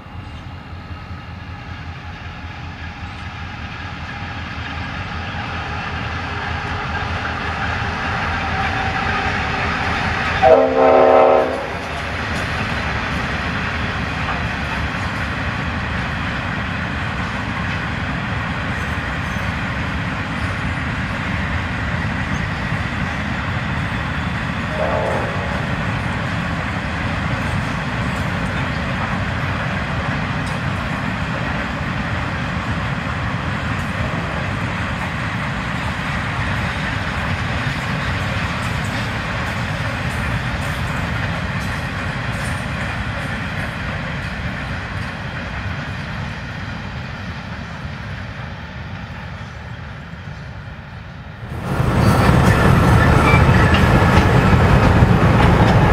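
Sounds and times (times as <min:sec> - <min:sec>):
locomotive horn blast: 0:10.4 - 0:12.0, 0:24.7 - 0:25.8
locomotive engines running: 0:51.4 - 0:55.9.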